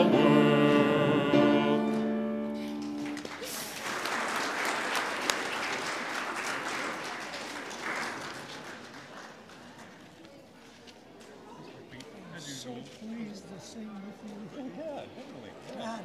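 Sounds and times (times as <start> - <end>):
congregation singing a hymn: 0.0 - 2.8
congregation applauding: 2.6 - 10.1.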